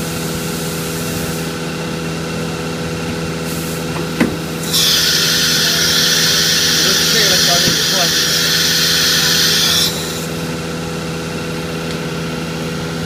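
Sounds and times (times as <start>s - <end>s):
cnc router humming: 1.7s - 13.0s
loud high hiss: 3.5s - 10.6s.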